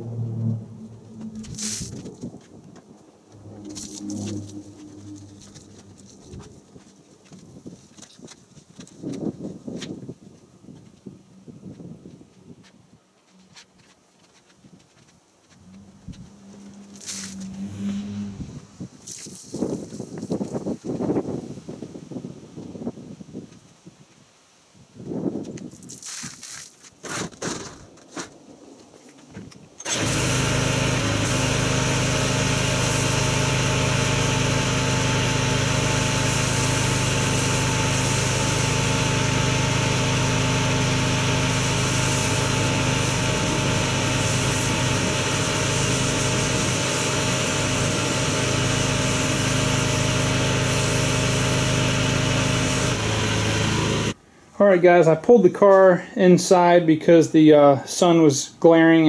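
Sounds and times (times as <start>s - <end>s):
pressure washer motor hum: 0.0s - 2.2s, 3.3s - 6.8s, 15.8s - 18.7s, 29.8s - 54.2s
spray hissing: 30.0s - 54.2s.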